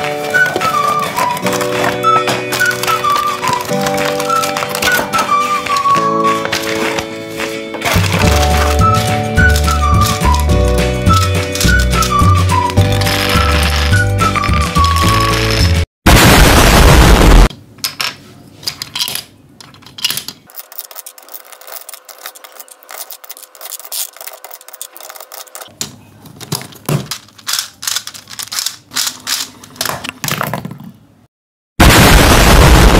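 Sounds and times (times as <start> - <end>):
plastic pieces clicking: 0.0 - 7.1, 7.8 - 15.8, 17.8 - 30.9
explosion sound effect: 16.1 - 17.5, 31.8 - 32.9.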